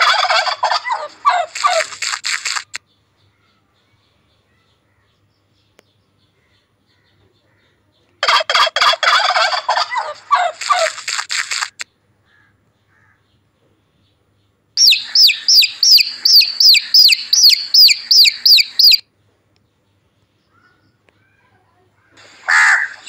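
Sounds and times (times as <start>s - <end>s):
turkey gobbling: 0.0s - 1.9s, 8.2s - 11.0s, 14.8s - 19.0s, 22.5s - 23.0s
chicks peeping: 14.8s - 19.0s.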